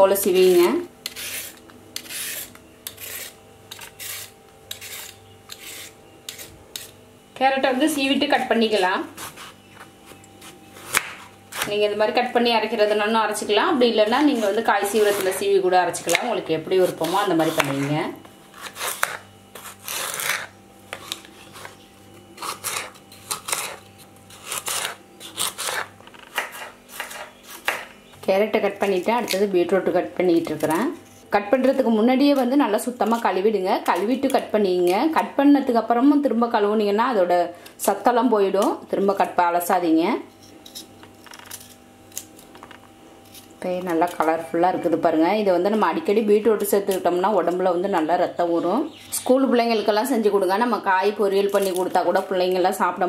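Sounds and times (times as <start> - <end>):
vegetable peeler scraping carrot: 0.4 - 7.0, 8.4 - 9.7, 14.0 - 21.8, 22.4 - 27.9, 51.4 - 52.3
knife slicing carrot: 16.1 - 17.9, 18.6 - 21.8, 22.4 - 27.9.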